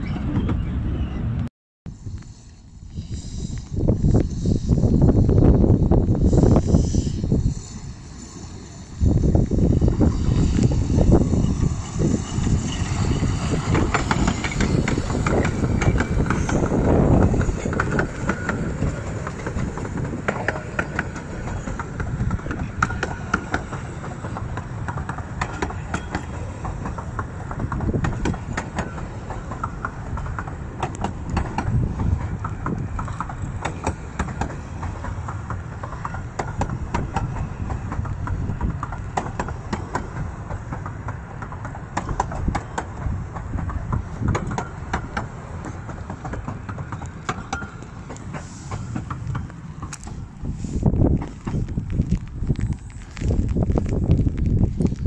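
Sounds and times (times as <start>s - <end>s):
steam locomotive rumble: 0.0s - 55.0s
coaches clicking over rail joints: 7.3s - 55.0s.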